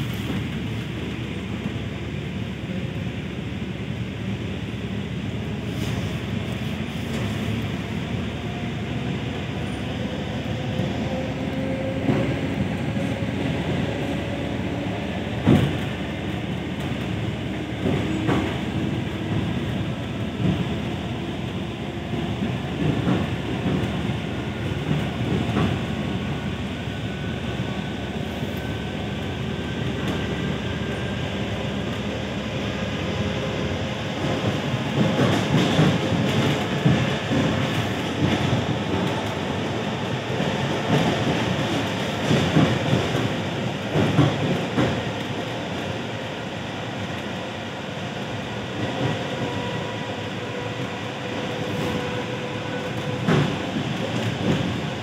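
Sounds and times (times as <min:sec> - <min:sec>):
train wheels rumbling on track: 0:00.0 - 0:55.0.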